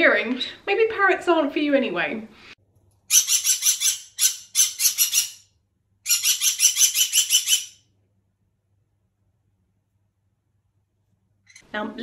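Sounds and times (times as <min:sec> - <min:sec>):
parrot screeching: 0:03.1 - 0:07.8.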